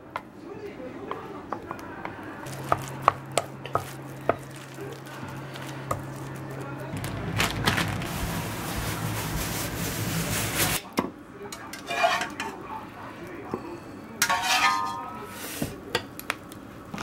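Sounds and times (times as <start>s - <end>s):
metal utensil clinking on plate: 11.5s - 12.6s, 14.2s - 15.2s.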